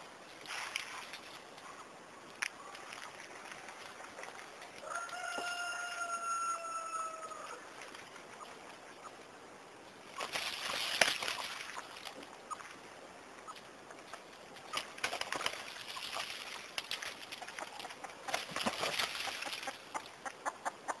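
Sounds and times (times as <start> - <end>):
rooster crowing: 4.8 - 7.6
scuffling and wing-flapping in leaves: 14.5 - 20.0.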